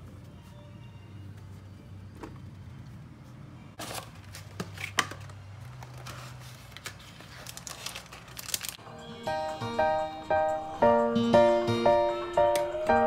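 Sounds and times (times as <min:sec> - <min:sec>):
crinkling and rustling: 0:03.8 - 0:08.8.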